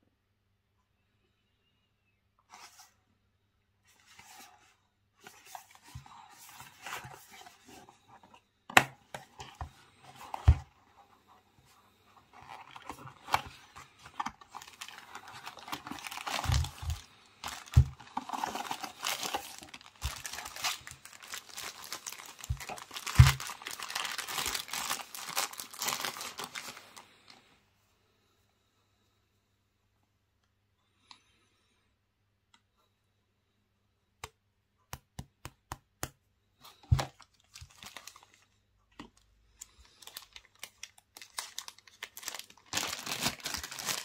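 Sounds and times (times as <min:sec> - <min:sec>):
packaging tearing and crinkling: 0:12.4 - 0:27.0, 0:39.8 - 0:44.0.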